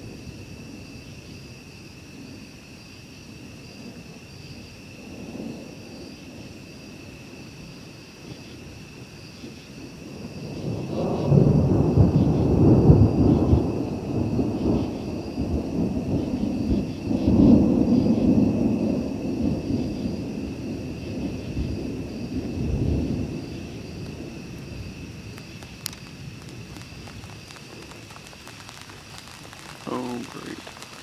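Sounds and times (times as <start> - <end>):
loud rolling thunder: 10.0 - 31.0.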